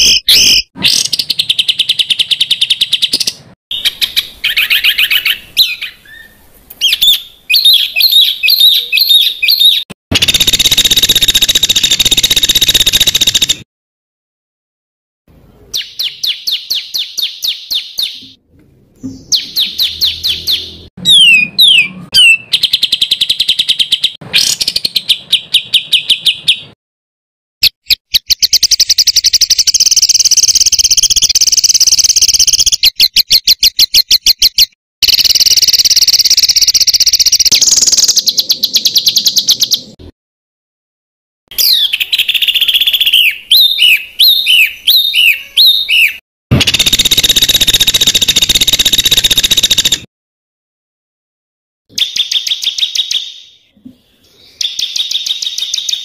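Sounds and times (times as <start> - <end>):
songbird trills and chattering: 54.3 - 56.0.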